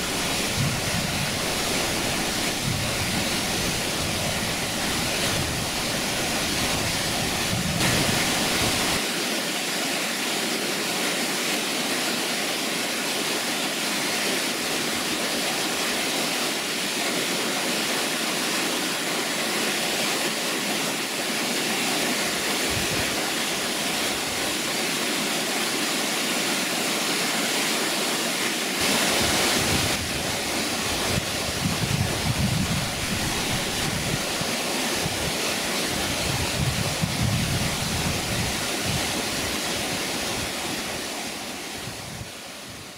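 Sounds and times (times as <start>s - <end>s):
waterfall rushing: 0.0s - 42.9s.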